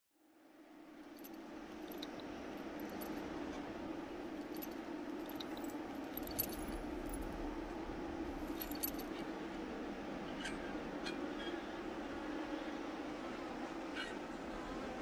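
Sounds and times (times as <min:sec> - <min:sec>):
low ambient hum: 0:00.2 - 0:15.0
metal tag on chain jingling: 0:04.4 - 0:07.4, 0:08.5 - 0:09.2.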